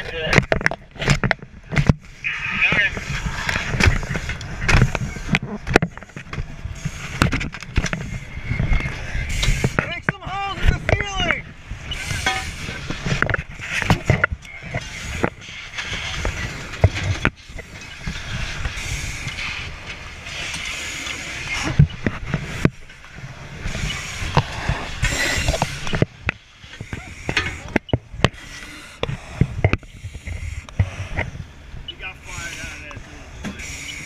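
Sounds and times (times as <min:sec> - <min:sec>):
knocks and clunks of gear: 0:00.3 - 0:02.0, 0:23.8 - 0:28.4, 0:29.0 - 0:31.4.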